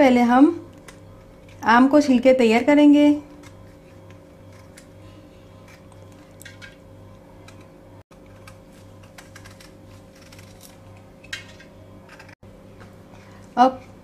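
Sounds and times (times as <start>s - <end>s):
low steady hum: 0.0s - 14.0s
knife scraping mango skin: 8.3s - 10.8s.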